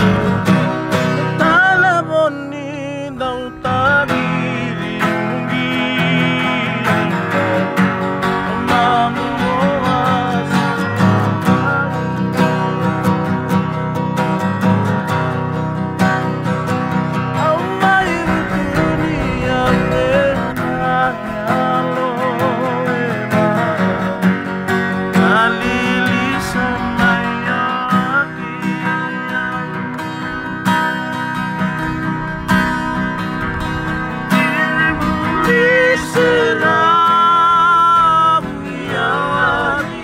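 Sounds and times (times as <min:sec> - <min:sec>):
men singing: 0:00.0 - 0:12.0, 0:17.4 - 0:24.3, 0:25.1 - 0:30.4, 0:33.3 - 0:40.0
acoustic guitars strumming: 0:00.0 - 0:40.0.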